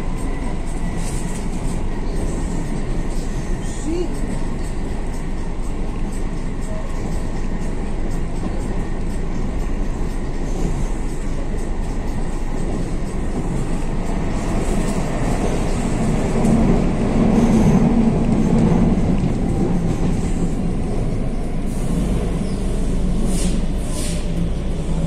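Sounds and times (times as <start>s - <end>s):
train wheels rumbling on track: 0.0s - 25.0s.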